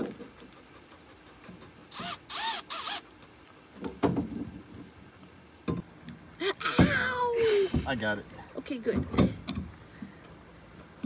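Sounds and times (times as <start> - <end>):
cordless drill whirring: 1.9 - 3.0.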